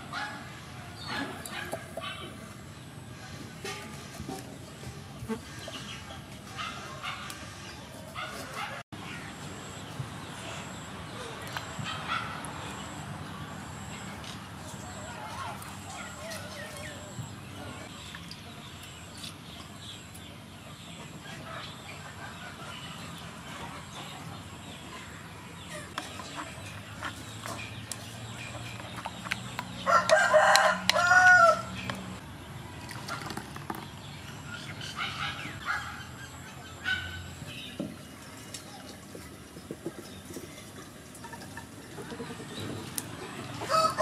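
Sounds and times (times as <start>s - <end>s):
rooster crowing: 29.8s - 31.8s, 43.6s - 44.0s.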